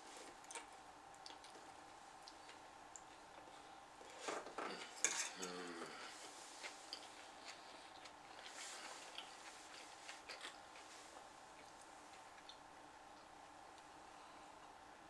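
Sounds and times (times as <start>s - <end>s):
fork clinking and scraping on plate: 5.0s - 5.5s.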